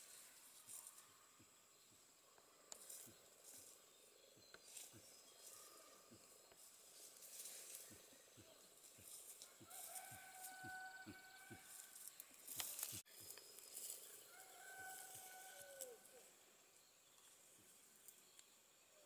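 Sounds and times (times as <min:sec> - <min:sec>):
rustle: 0:11.6 - 0:16.4.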